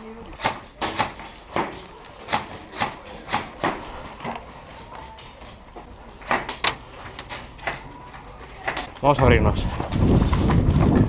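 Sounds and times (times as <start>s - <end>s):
footsteps walking: 1.2s - 9.0s.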